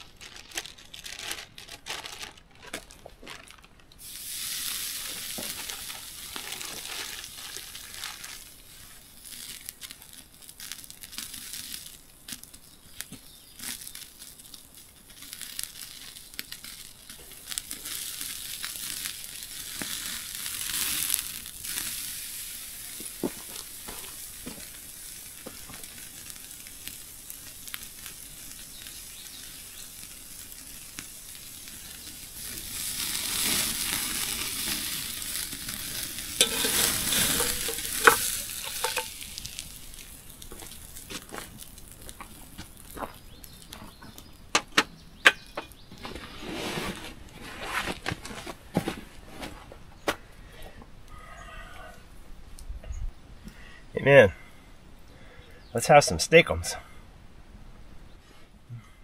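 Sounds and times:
steak sizzling over a campfire: 0:04.0 - 0:46.2.

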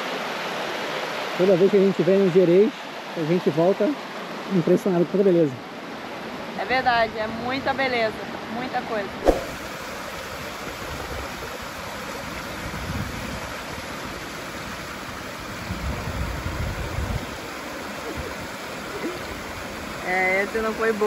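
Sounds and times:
river water rushing over cascade: 0:00.0 - 0:21.0.

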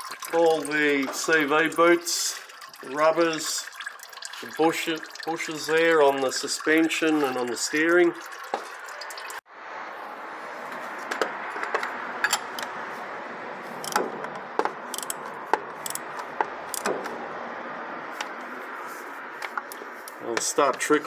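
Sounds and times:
socket wrench metallic clicks: 0:13.8 - 0:16.9.

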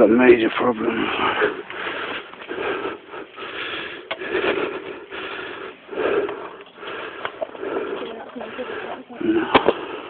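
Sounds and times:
person breathing heavily: 0:00.8 - 0:10.0.

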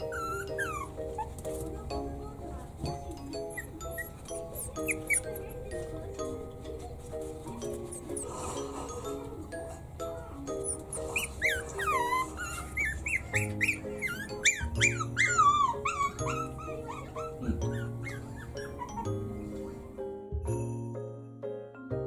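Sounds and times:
puppy yipping and whimpering: 0:00.0 - 0:01.6, 0:03.4 - 0:05.8, 0:10.6 - 0:19.3
background music: 0:00.0 - 0:22.0.

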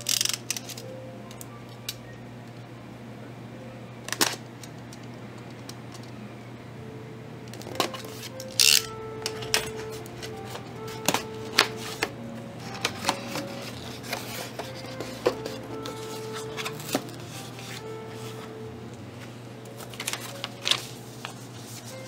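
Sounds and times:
tape tearing: 0:00.0 - 0:00.8
soft background music: 0:00.0 - 0:22.0.

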